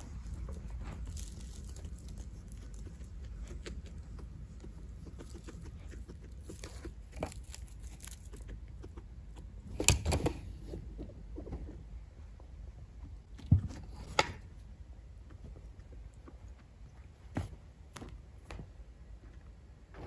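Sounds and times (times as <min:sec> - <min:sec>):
guinea pig rustling in bedding: 0:00.0 - 0:12.4.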